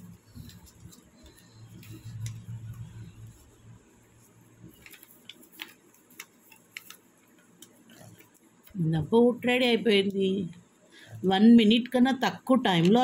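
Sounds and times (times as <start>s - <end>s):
paper crinkling and clicking: 0.0s - 3.5s, 4.2s - 8.8s, 12.8s - 13.0s
low hum: 0.0s - 4.8s.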